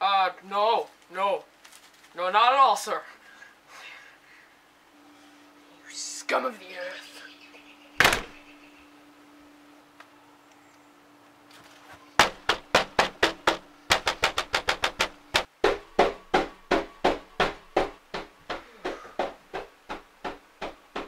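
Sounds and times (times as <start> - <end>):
rapid knocking on glass door: 12.2 - 21.0.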